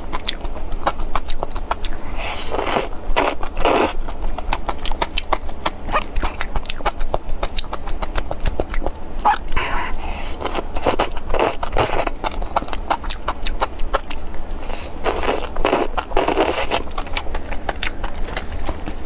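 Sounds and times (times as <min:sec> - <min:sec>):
wet chewing and smacking: 0:00.0 - 0:19.0
slurping: 0:14.5 - 0:19.0.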